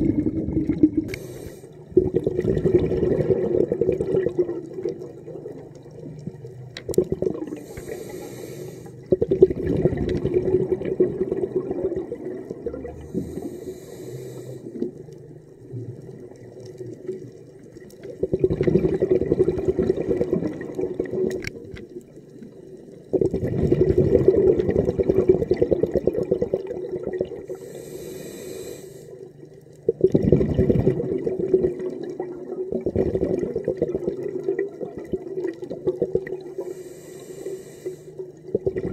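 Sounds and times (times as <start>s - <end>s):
exhaled bubbles rushing: 0.0s - 7.9s, 9.0s - 13.6s, 15.6s - 27.6s, 29.8s - 36.7s, 38.4s - 38.9s
scuba regulator inhale hiss: 1.1s - 1.8s, 7.5s - 9.1s, 13.0s - 15.0s, 27.4s - 29.3s, 36.5s - 38.4s.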